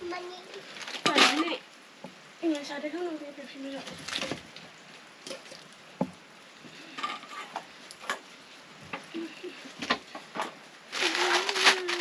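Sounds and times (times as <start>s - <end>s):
cooking pots and utensils clinking: 6.8s - 8.3s.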